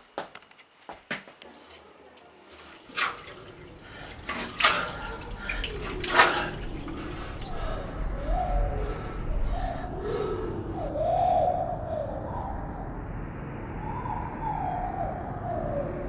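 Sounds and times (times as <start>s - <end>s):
water splashing at a sink: 1.4s - 8.1s.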